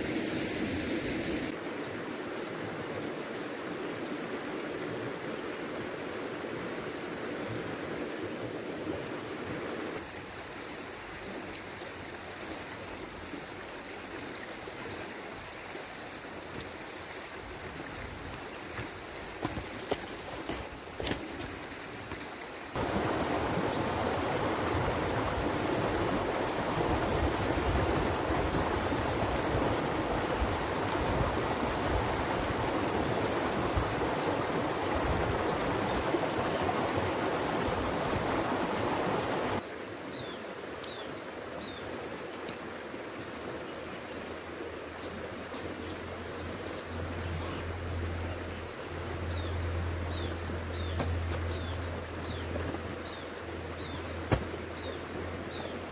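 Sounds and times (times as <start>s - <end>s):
birds chirping: 0.0s - 1.5s, 49.3s - 55.8s
river water rushing: 0.0s - 55.9s.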